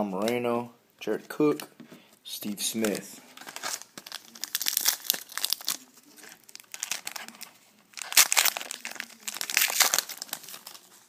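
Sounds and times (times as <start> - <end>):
foil wrapper crinkling and tearing: 2.8 - 11.0.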